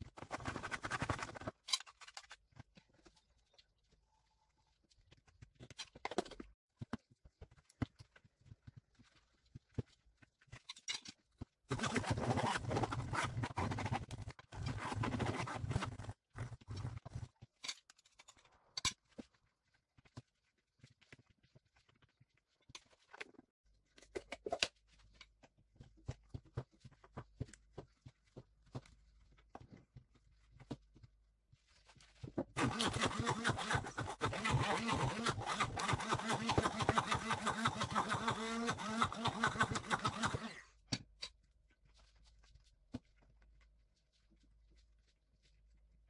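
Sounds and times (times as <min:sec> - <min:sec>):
stick blender running: 0:32.6 - 0:40.6.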